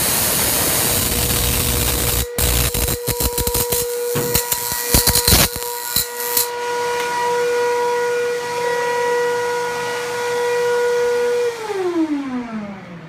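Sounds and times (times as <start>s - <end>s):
spark gap crackling: 0.0s - 6.5s
high-pitched whine: 0.0s - 7.6s.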